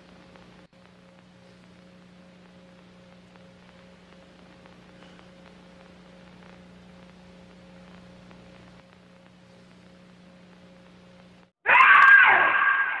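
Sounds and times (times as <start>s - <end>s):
faint low hum: 0.0s - 11.5s
loud high-pitched shriek: 11.7s - 13.0s.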